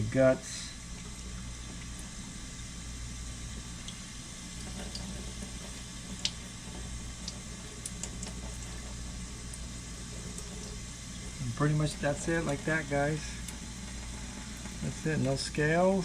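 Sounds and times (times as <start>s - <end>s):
fish being rinsed by hand: 0.8s - 16.0s
tap water running into metal sink: 3.4s - 16.0s.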